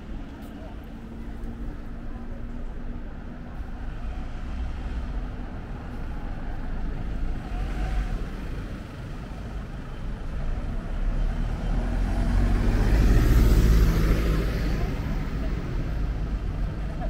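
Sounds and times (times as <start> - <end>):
bus rumble: 0.0 - 17.0
car engines and tyres: 0.0 - 17.0.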